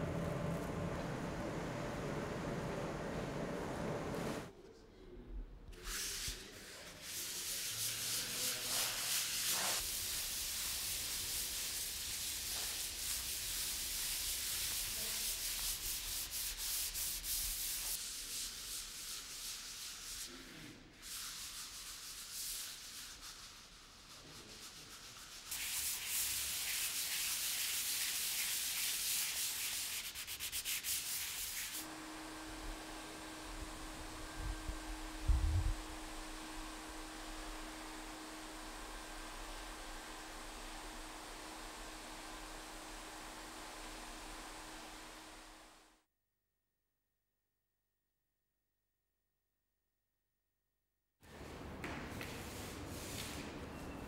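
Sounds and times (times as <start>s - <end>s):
steady low hum: 0.0s - 4.5s, 31.9s - 41.8s
sandpaper rubbing on canvas: 5.8s - 31.9s, 52.4s - 53.5s.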